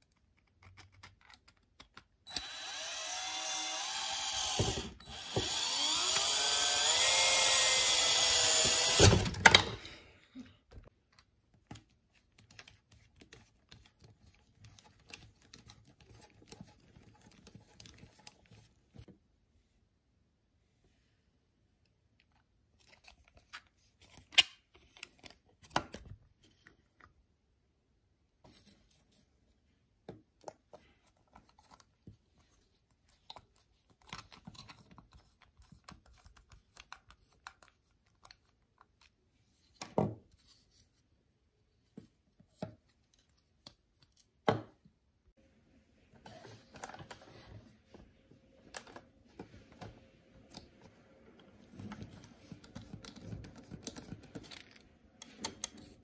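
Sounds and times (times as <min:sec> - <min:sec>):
screwdriver driving screws: 0:02.3 - 0:09.4.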